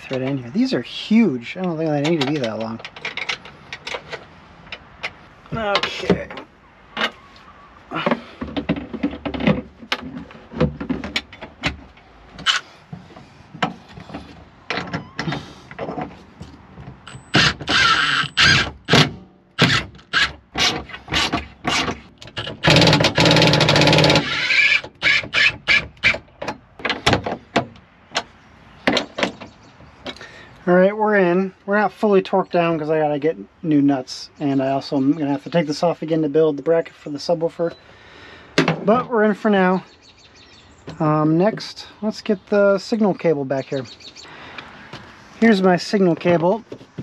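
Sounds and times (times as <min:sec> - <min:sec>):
fasteners and plastic parts clicking: 0:01.6 - 0:07.2, 0:17.0 - 0:30.2
cordless driver whirring: 0:17.1 - 0:19.0, 0:22.6 - 0:26.2.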